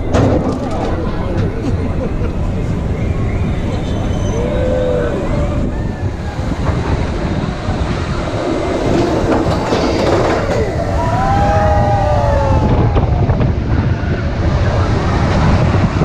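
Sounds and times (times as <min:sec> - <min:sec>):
roller coaster rumble and rattle: 0:00.0 - 0:16.0
wind on microphone: 0:00.0 - 0:16.0
high falling squeals: 0:02.8 - 0:06.8.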